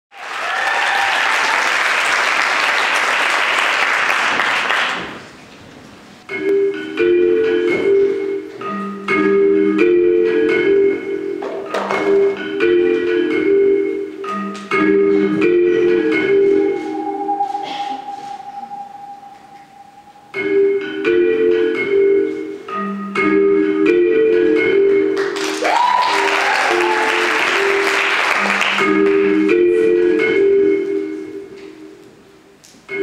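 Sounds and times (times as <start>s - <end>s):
audience applauding: 0.1s - 5.3s, 25.2s - 29.2s
marimba-like melody over a beat: 6.3s - 25.4s, 26.8s - 32.0s.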